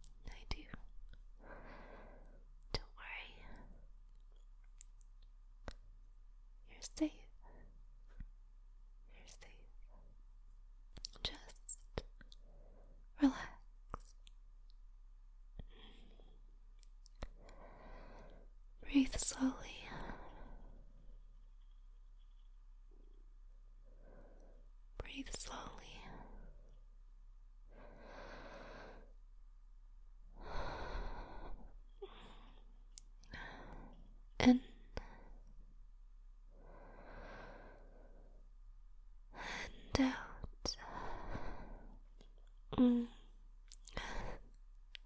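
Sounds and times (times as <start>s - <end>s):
woman breathing softly: 0.0s - 3.9s, 12.3s - 13.7s, 15.6s - 26.8s, 27.6s - 29.2s, 30.3s - 35.6s, 36.5s - 38.5s, 39.3s - 44.6s
woman breathing deeply: 1.4s - 2.5s, 17.4s - 18.5s, 27.7s - 29.2s, 30.4s - 32.7s, 36.5s - 38.4s, 40.8s - 42.0s.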